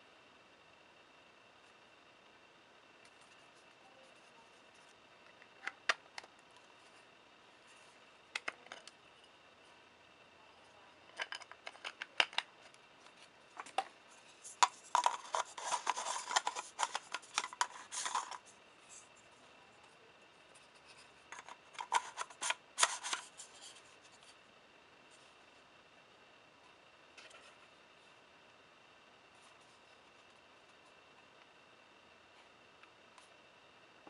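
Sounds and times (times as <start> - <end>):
rapid clicking and scraping: 13.1 - 19.1, 20.6 - 24.2.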